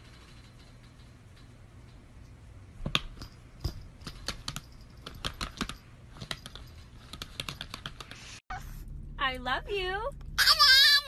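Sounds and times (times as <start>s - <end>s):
paws tapping laptop keys: 2.8s - 8.2s.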